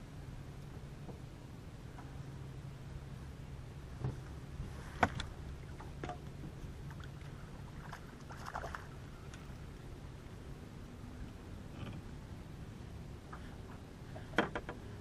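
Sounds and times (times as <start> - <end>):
faint low hum: 0.0 - 15.0
light knocks and clicks of fishing gear: 0.6 - 1.3, 1.9 - 2.2, 4.0 - 9.8, 13.2 - 15.0.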